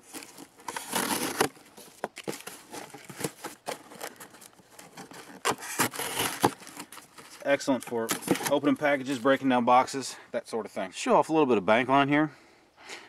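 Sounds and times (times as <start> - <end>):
knife rasping through cardboard: 0.1 - 1.6, 2.2 - 7.4.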